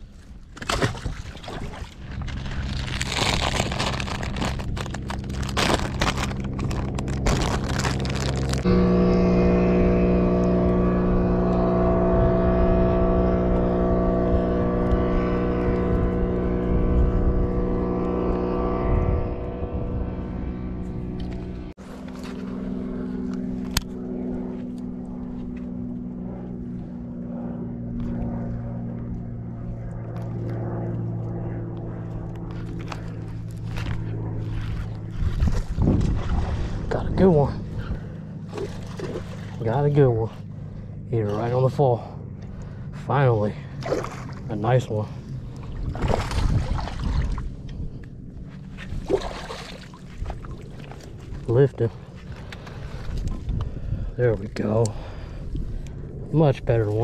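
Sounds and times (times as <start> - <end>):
motor engine droning: 0.0 - 57.0
wind rumble on microphone: 0.0 - 57.0
fish splashing and thrashing in water: 0.4 - 8.6, 38.5 - 39.6, 43.8 - 44.5, 45.5 - 47.6, 48.8 - 51.4.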